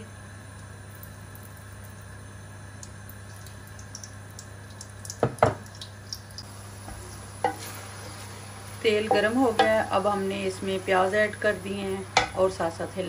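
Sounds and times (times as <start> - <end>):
steady low hum: 0.0 - 13.0
oil trickling into a pan: 2.8 - 6.4.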